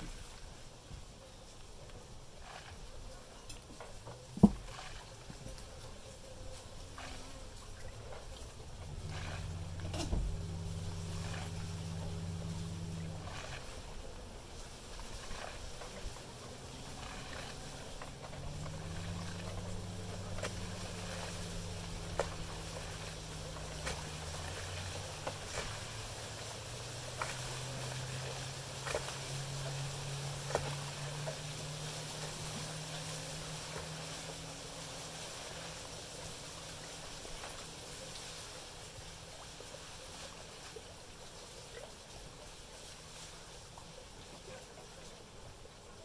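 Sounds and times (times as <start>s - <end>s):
honeybees buzzing: 6.0s - 34.8s.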